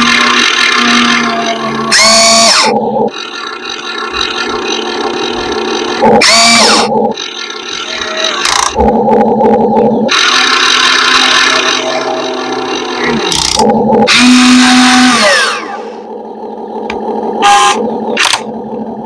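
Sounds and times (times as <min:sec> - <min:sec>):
small electric motors whining: 0:00.0 - 0:19.0.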